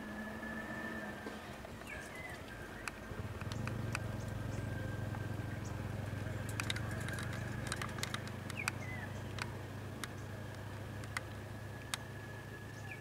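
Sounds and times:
bird chirp: 0.0s - 13.0s
vehicle engine idling: 0.0s - 13.0s
sharp clicks: 2.8s - 4.4s, 6.4s - 12.1s.

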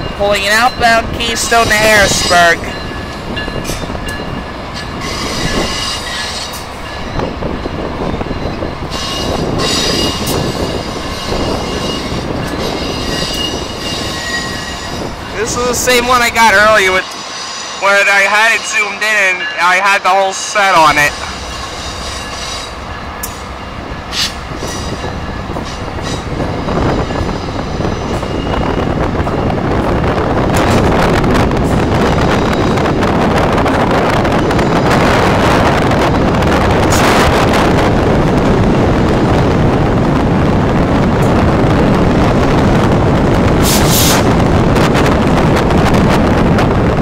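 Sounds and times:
train wheels rumbling on rail: 0.0s - 47.0s
high wheel squeal: 5.0s - 7.2s, 8.4s - 15.1s.

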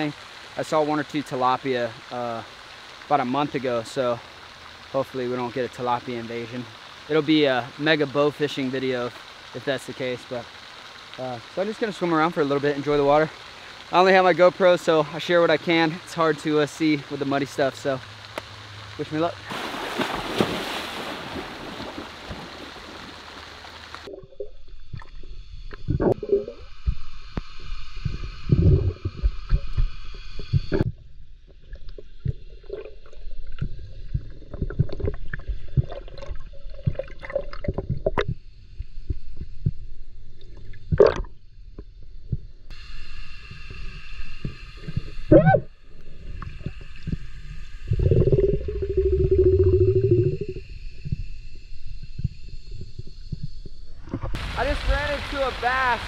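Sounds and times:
swimmer splashing into water: 19.4s - 23.9s
muffled underwater knocks and thumps: 28.0s - 38.4s, 39.0s - 40.0s, 52.0s - 54.4s
low rumble: 44.1s - 54.5s.

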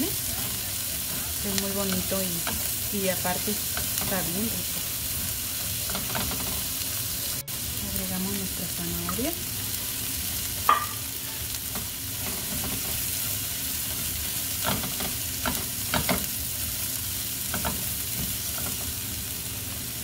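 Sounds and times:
food sizzling in butter: 0.0s - 20.0s
spatula tapping and scraping pan: 10.6s - 11.0s.

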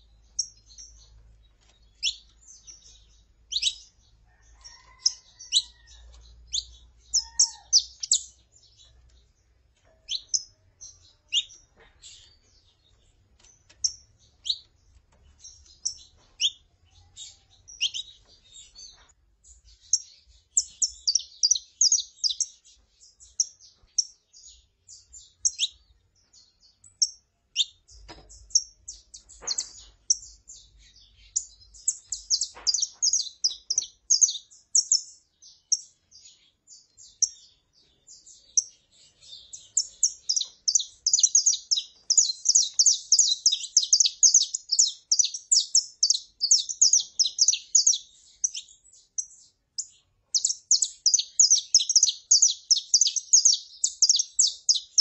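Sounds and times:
finch singing high chirps: 0.0s - 55.0s
finch calling: 39.6s - 48.7s, 50.4s - 55.0s.

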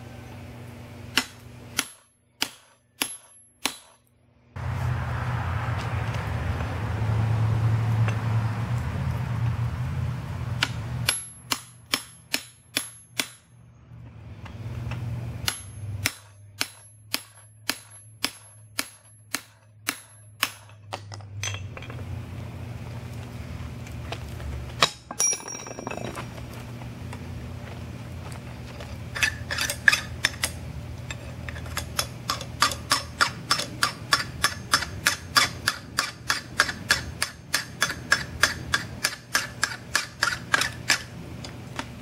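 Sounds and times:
hammer striking chisel on metal: 1.1s - 4.0s, 10.6s - 13.5s, 15.4s - 21.8s, 31.6s - 41.1s
low hum: 4.1s - 33.2s.

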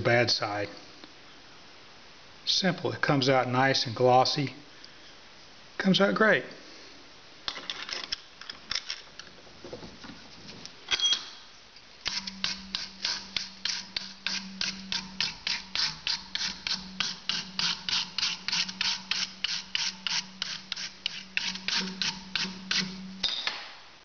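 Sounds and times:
wire brush scrubbing plastic: 12.0s - 23.2s.

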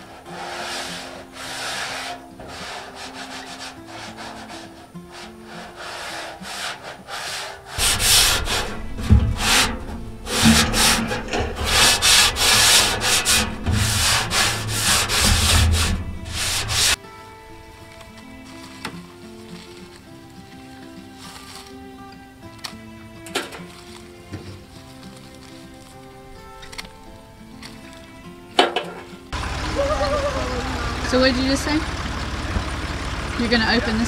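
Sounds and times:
hand scrubbing metal pan: 0.0s - 17.0s
soft background music: 15.8s - 29.4s.

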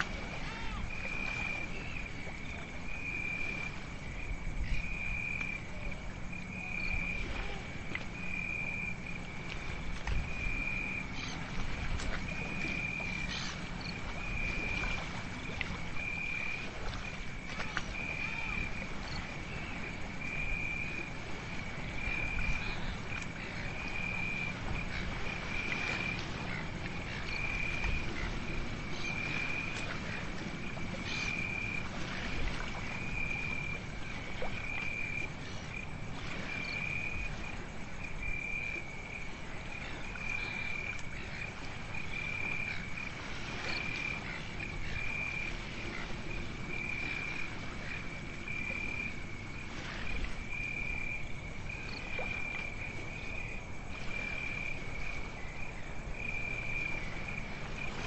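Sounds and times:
cricket trilling: 0.0s - 58.0s.

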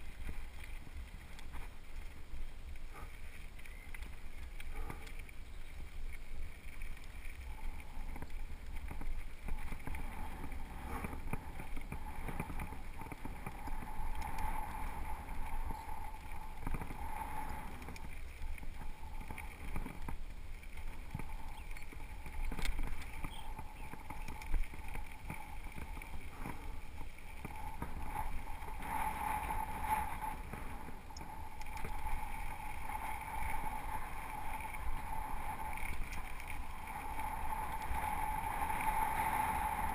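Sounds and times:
bike rattling over bumps: 0.0s - 39.9s
hum: 0.0s - 39.9s
wind buffeting microphone: 7.4s - 39.9s
tyres crunching on loose stones: 15.7s - 29.6s.

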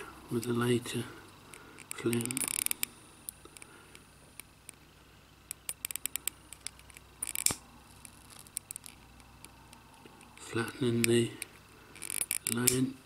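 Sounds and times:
lighter hiss: 5.4s - 12.9s
metal lighter clicks and taps: 5.5s - 7.6s.

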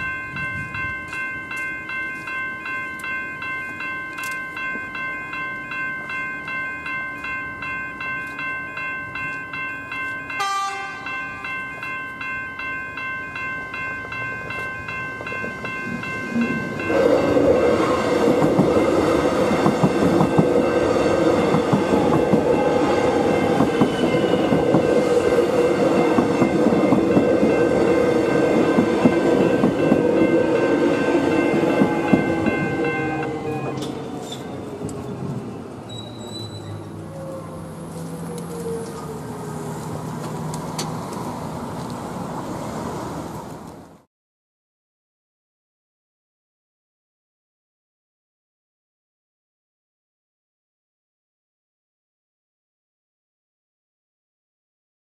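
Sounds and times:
level crossing bells ringing: 0.0s - 34.8s
train running through: 0.0s - 44.1s.

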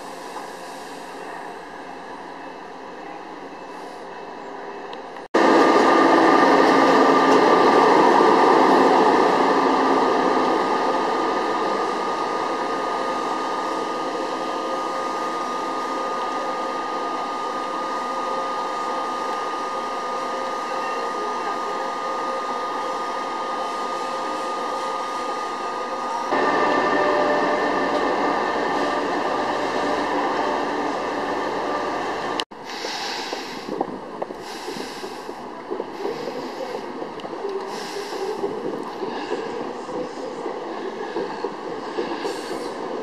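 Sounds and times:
held locomotive tones: 0.0s - 43.0s
train rushing into platform: 0.0s - 43.0s.

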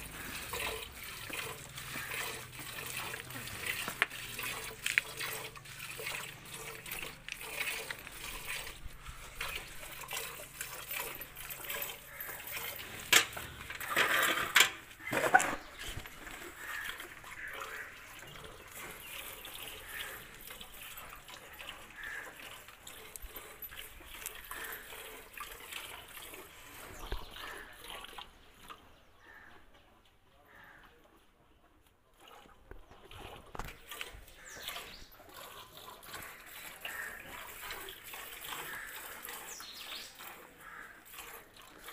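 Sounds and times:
milk squirting into steel bucket: 0.0s - 29.4s, 32.1s - 41.9s.

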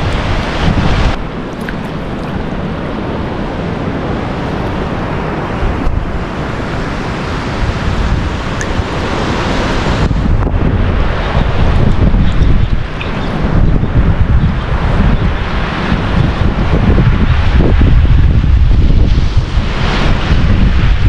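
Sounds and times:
shallow sea water sloshing: 0.0s - 3.3s
wind noise: 0.0s - 21.0s.

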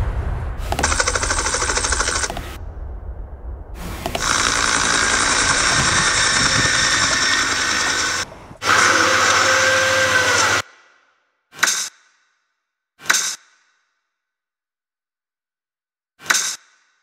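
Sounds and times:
toy helicopter rotor whirring: 0.8s - 2.5s, 4.1s - 10.6s.

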